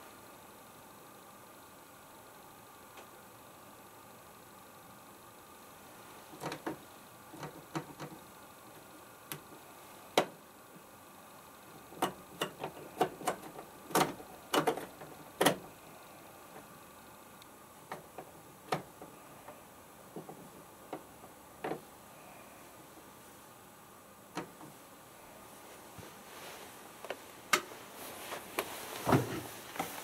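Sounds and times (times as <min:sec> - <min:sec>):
faint steady hiss: 0:00.0 - 0:30.0.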